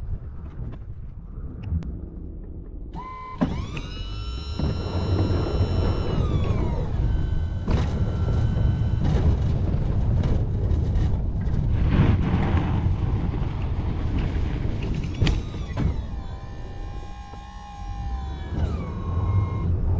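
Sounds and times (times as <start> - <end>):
whining tone gliding down: 2.9 - 11.1, 14.1 - 19.9
heavy vehicle engine running: 3.0 - 19.9.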